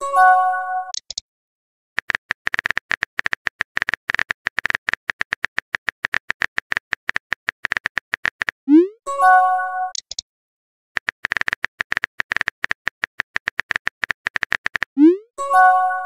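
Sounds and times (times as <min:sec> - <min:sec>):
rapid keyboard typing: 0:02.0 - 0:08.6, 0:11.0 - 0:15.0.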